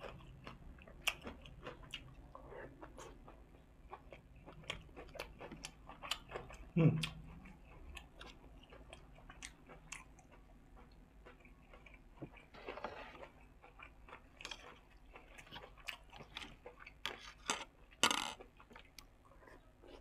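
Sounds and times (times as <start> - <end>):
chewing and crunching: 0.0 - 20.0
cutlery scraping metal tray: 12.6 - 13.2.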